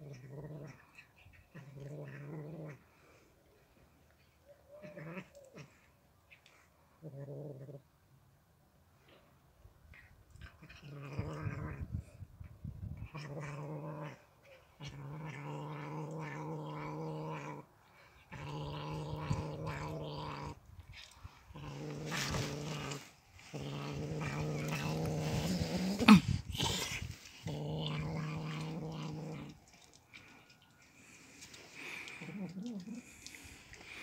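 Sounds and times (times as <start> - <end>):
cat growling: 0.0 - 3.2, 4.8 - 5.9, 7.0 - 7.8, 9.9 - 34.0.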